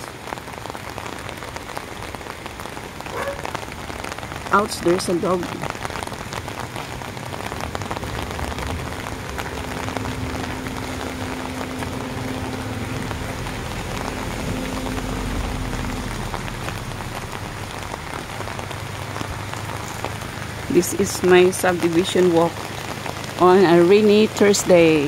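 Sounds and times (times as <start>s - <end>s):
rain falling on an umbrella: 0.0s - 25.0s
raindrops ticking close by: 0.0s - 25.0s.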